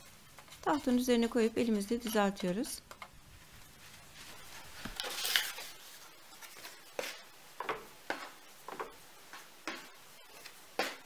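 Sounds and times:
hands rubbing bread dough: 0:03.4 - 0:07.4.

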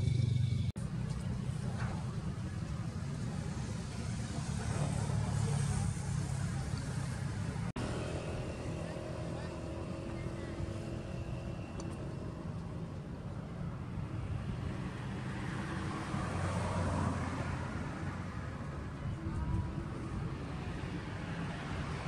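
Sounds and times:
low engine drone: 0:00.0 - 0:14.1
noisy outdoor background: 0:00.0 - 0:22.0.

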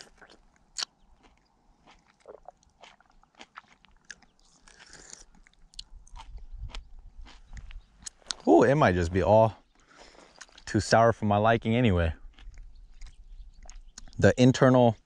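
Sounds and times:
person chewing fruit: 0:00.0 - 0:08.5, 0:09.8 - 0:10.7, 0:12.2 - 0:14.2.

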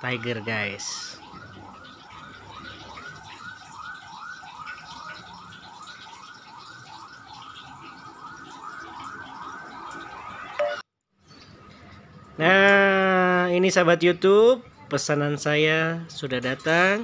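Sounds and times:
electronic siren whooping: 0:00.1 - 0:10.8.

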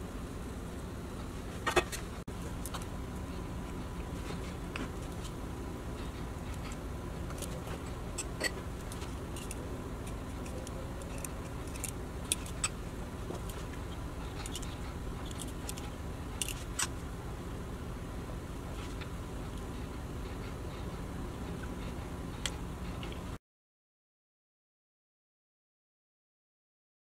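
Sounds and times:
steady low hum: 0:00.0 - 0:23.4.

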